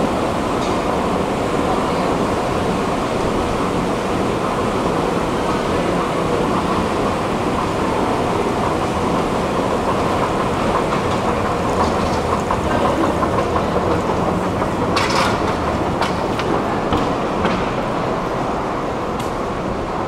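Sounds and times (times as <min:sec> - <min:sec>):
escalator rumble and clatter: 0:04.3 - 0:20.0.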